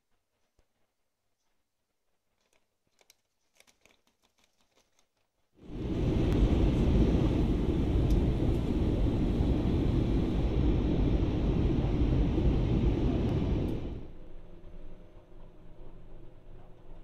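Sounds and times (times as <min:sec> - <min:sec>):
jet engine and airflow rumble: 0:05.6 - 0:16.2.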